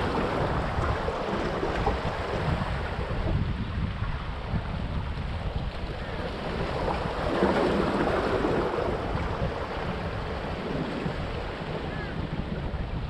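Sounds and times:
waves washing among stones: 0:00.0 - 0:03.4, 0:05.4 - 0:11.8
wind rumble on microphone: 0:00.0 - 0:13.0.

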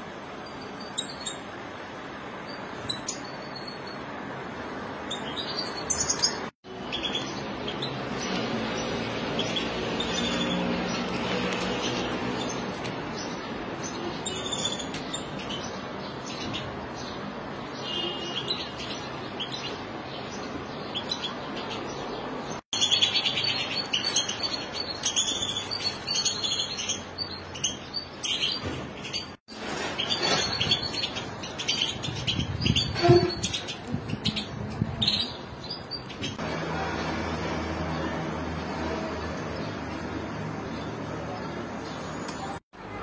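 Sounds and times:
finches chirping and twittering: 0:05.1 - 0:36.4.

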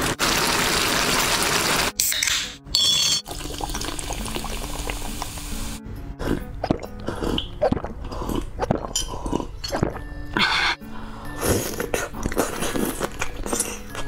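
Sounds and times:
soda fizzing: 0:00.0 - 0:01.9, 0:03.3 - 0:05.8
background music: 0:00.4 - 0:14.0
person gulping: 0:06.2 - 0:10.8.

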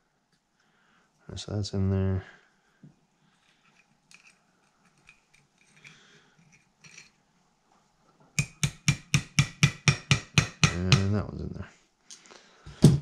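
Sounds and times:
small parts clicking: 0:03.4 - 0:07.2.

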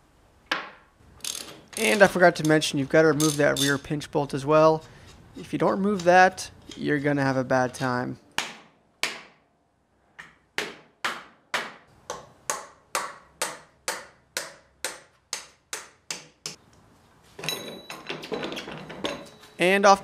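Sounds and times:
hammer tapping metal: 0:10.2 - 0:16.6.

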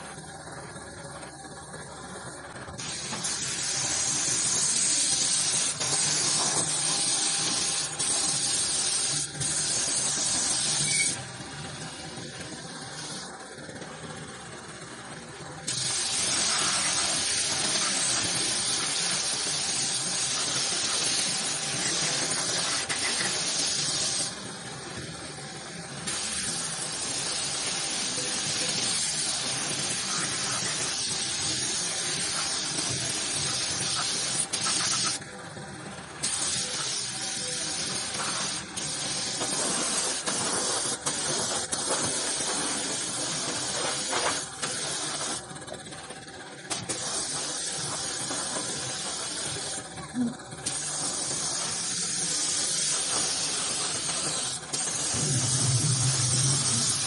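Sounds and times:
paint spray gun hissing: 0:02.8 - 0:11.1, 0:15.7 - 0:24.4, 0:26.1 - 0:35.2, 0:36.2 - 0:45.4, 0:46.7 - 0:57.0.

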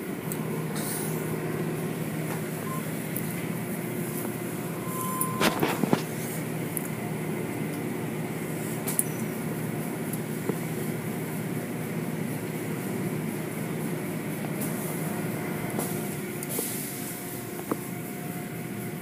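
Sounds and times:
car wash machinery hum: 0:00.0 - 0:19.0.

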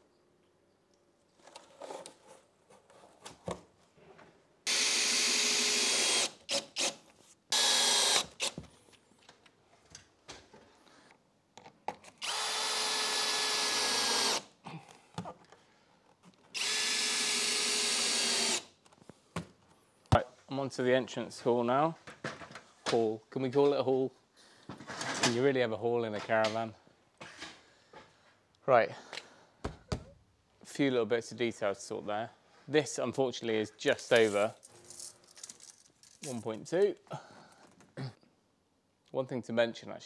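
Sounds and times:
cordless drill driving screws: 0:04.7 - 0:08.6, 0:12.2 - 0:14.5, 0:16.5 - 0:18.7
knocks and handling of boards: 0:22.0 - 0:22.7, 0:29.6 - 0:30.2.

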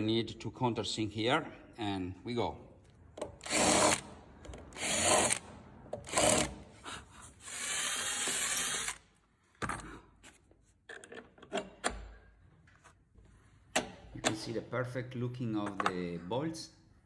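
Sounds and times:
cordless drill cutting wood: 0:03.4 - 0:04.0, 0:04.8 - 0:05.4, 0:07.4 - 0:09.0.

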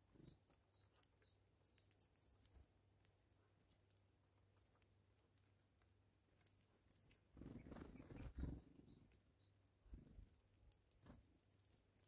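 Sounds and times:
small bird calling: 0:00.0 - 0:02.6, 0:06.3 - 0:12.0.

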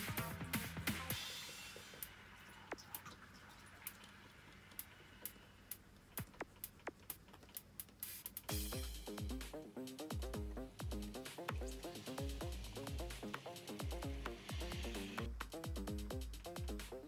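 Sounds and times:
background music: 0:00.0 - 0:02.4, 0:08.0 - 0:17.0.

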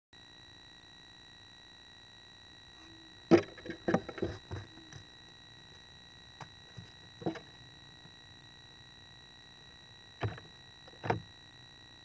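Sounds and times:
high electronic whine: 0:00.2 - 0:12.0
owl thumps and scrapes in nest box: 0:03.3 - 0:04.8.

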